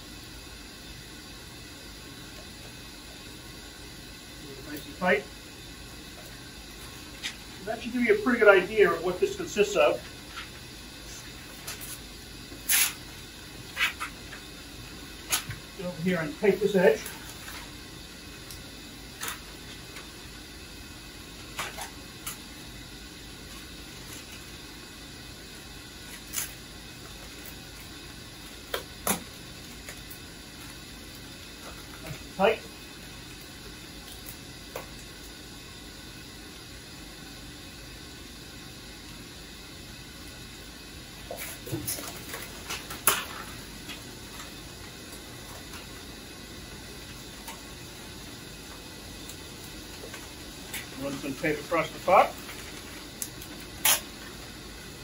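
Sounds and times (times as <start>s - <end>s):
steady machinery hum: 0.0s - 55.0s
adhesive tape ripping: 12.6s - 13.0s
foil tape crackling and snapping: 52.4s - 54.4s.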